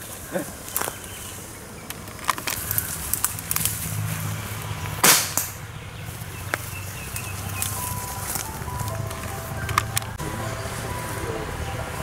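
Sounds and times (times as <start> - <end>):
dart gun firing: 5.0 - 5.6.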